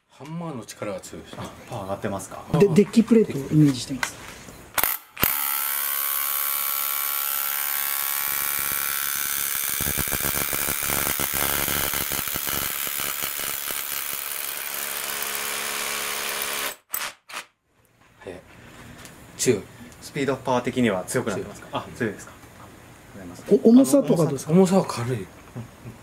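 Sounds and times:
drill motor whine: 4.8 - 14.5
hammer drill boring into concrete: 4.8 - 17.1.

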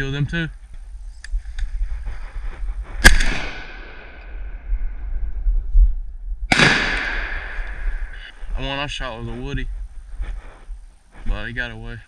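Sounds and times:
shotgun blast with echo: 3.0 - 4.1, 6.5 - 8.1.

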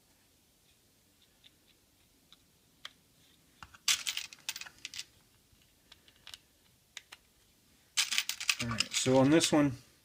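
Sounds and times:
metal rivets clicking and rattling: 3.8 - 5.1, 8.0 - 9.5.

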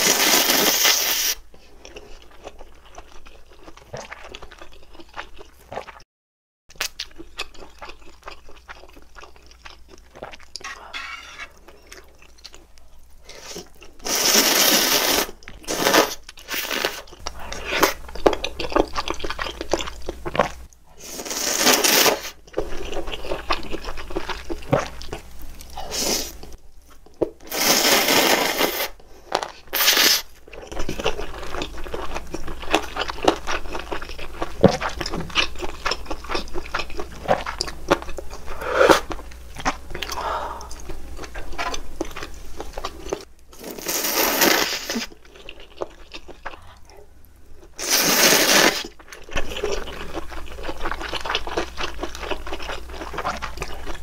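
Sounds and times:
chewing and mouth sounds: 0.7 - 6.0, 6.7 - 10.8, 11.5 - 14.6, 15.2 - 21.4, 22.2 - 27.5, 29.2 - 44.0, 44.6 - 54.0
noodles slurped: 13.3 - 25.0, 27.4 - 31.4, 34.6 - 46.9, 47.8 - 54.0.

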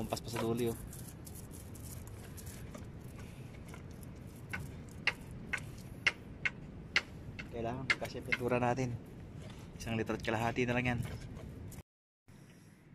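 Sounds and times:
faint steady background noise: 0.0 - 12.9.

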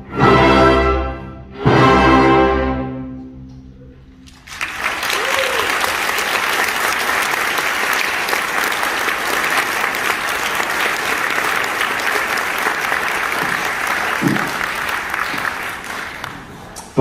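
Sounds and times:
audience applauding: 4.2 - 17.0.

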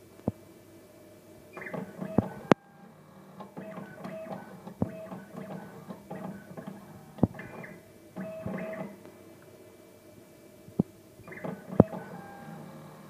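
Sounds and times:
sharp machine clicks: 1.6 - 2.6, 11.3 - 12.9
machine motors whirring: 1.6 - 9.0, 11.2 - 13.0.

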